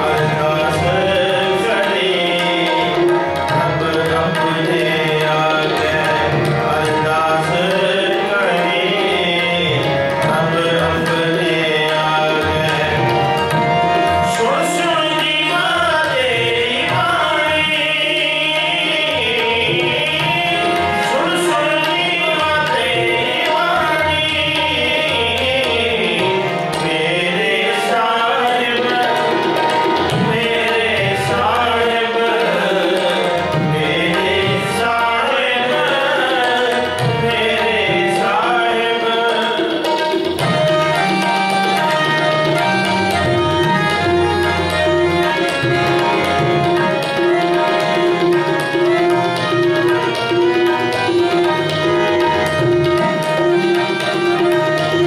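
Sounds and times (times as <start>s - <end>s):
harmonium: 0.0s - 55.0s
man singing: 0.0s - 55.0s
tabla strokes: 9.0s - 17.9s, 28.6s - 38.5s, 39.6s - 55.0s.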